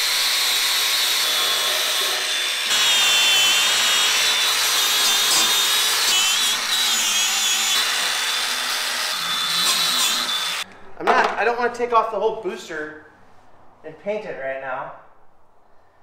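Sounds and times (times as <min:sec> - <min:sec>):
grinder with wire brush whining: 0:00.0 - 0:10.6.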